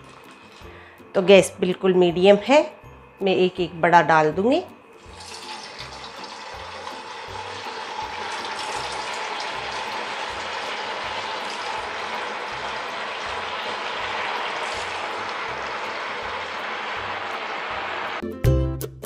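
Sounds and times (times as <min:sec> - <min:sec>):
food deep-frying in oil: 0:05.0 - 0:18.2.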